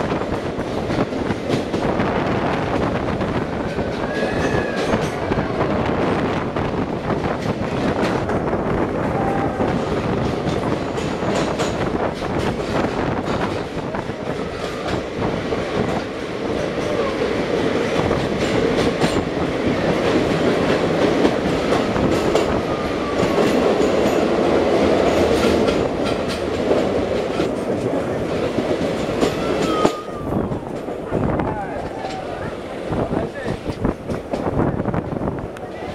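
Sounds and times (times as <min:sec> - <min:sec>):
train wheels roaring in tunnel: 0:00.0 - 0:35.9
sharp rail clicks: 0:09.7 - 0:17.0, 0:33.4 - 0:35.8.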